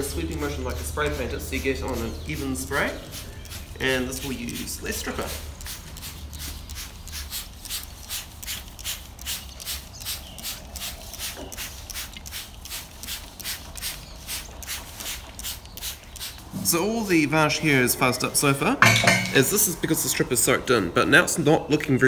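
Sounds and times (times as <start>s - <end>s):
spray bottle squirting: 0.0s - 16.6s.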